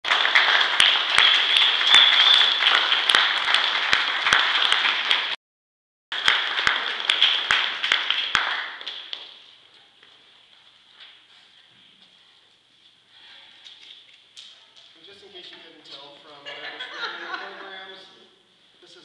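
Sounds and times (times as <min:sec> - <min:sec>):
audience applauding: 0:00.0 - 0:05.4, 0:06.1 - 0:09.3.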